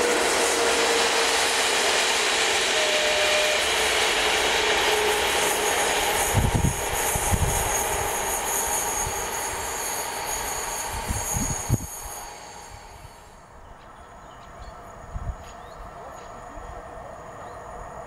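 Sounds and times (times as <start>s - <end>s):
train wheels on rail: 0.0s - 18.0s
thin high squeal: 2.6s - 4.0s, 4.8s - 13.4s.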